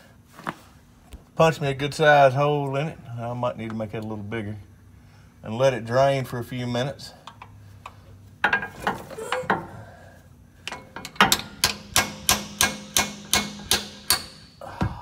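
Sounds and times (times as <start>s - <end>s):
hammer striking steel punch: 10.7s - 14.5s.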